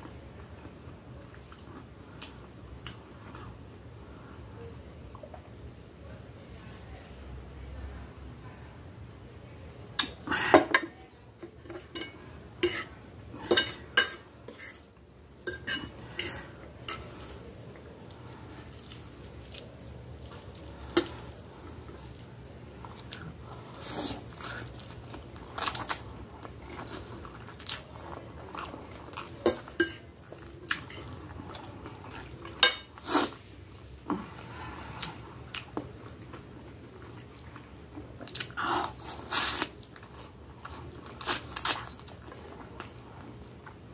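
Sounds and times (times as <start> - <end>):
chewing: 15.5 - 33.4, 34.1 - 43.8.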